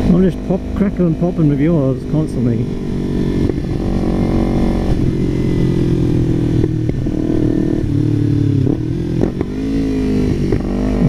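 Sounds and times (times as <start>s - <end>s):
motorcycle engine at steady revs: 0.0s - 11.0s
wind rumble on microphone: 2.5s - 11.0s.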